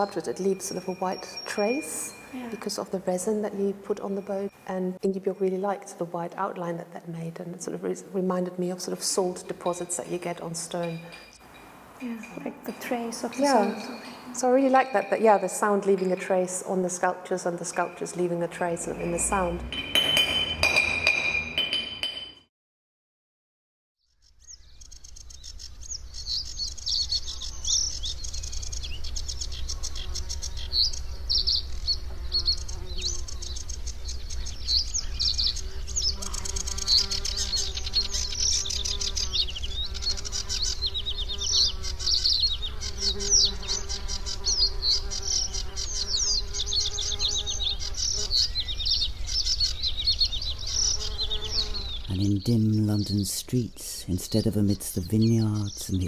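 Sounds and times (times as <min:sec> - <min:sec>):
insects chirping: 0:24.1 - 0:56.0.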